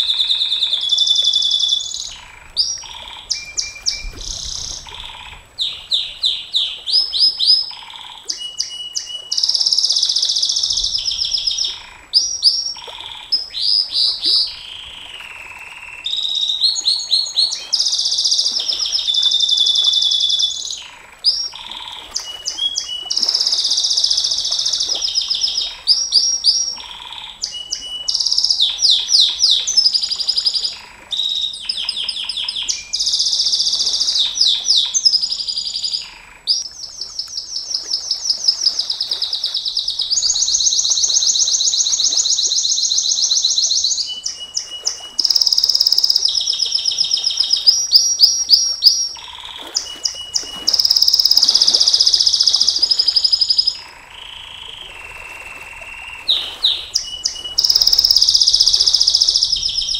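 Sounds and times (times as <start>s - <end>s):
canary singing rapid trills: 37.9s - 55.1s, 56.3s - 59.9s.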